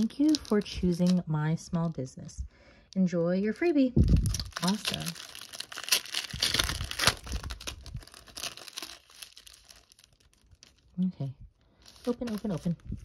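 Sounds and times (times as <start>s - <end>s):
plastic sleeve crinkling and tearing: 0.0s - 1.3s, 4.0s - 13.0s.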